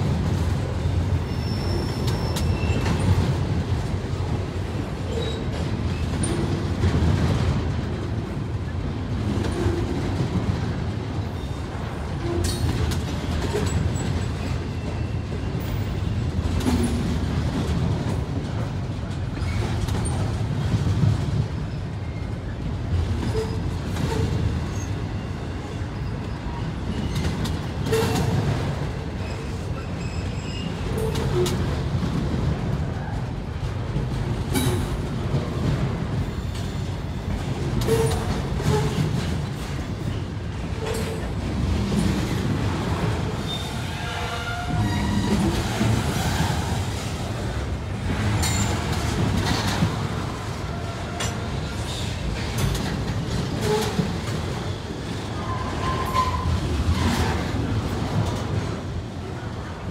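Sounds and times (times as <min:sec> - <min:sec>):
train wheels rumbling on rail: 0:00.0 - 0:59.9
faint wheel squeals: 0:01.3 - 0:03.0.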